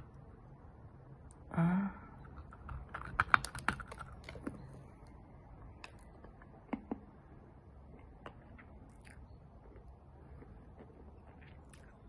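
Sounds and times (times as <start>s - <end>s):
crunching of stone being chewed: 2.2s - 7.1s, 7.8s - 12.0s.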